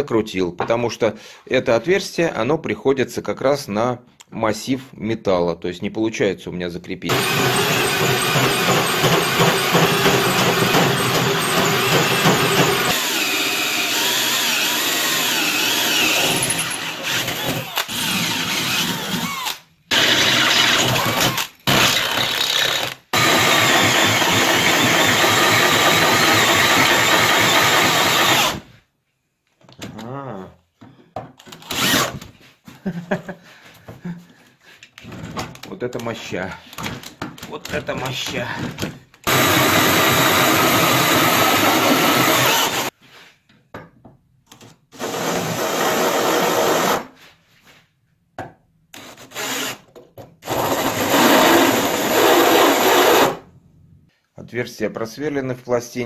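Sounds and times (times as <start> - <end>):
electric drill boring into metal: 7.1 - 28.6, 31.6 - 32.2, 39.3 - 42.9, 50.5 - 53.4
loud power tool: 7.1 - 28.7, 31.6 - 32.2, 39.3 - 42.9, 49.0 - 49.8, 50.4 - 53.4.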